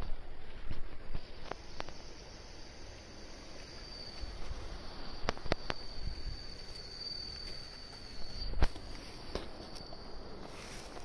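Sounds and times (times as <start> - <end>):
insect trilling: 1.2 - 11.0.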